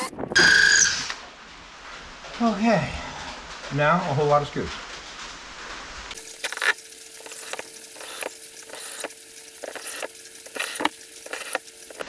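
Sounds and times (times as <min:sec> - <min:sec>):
cordless drill driving screws: 0:00.0 - 0:01.2, 0:06.4 - 0:12.0.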